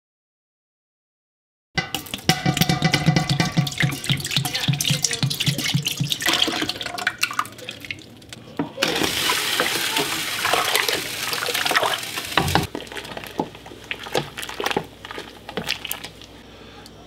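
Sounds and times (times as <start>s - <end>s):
spoon knocking against pot: 1.8s - 6.6s, 12.4s - 12.7s
liquid sloshing in a pot: 1.8s - 16.4s.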